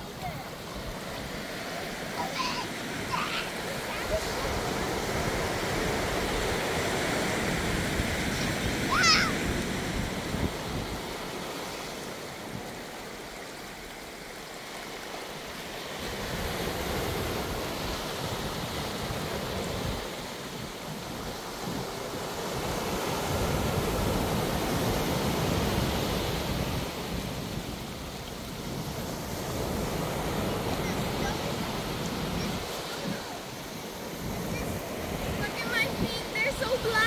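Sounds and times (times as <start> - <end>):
ocean surf breaking: 0.0 - 37.0
water running over sand: 0.0 - 37.0
wind rumbling on microphone: 3.1 - 12.9.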